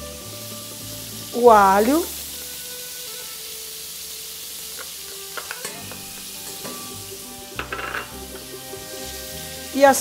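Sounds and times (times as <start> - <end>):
garlic sizzling in oil: 0.0 - 10.0.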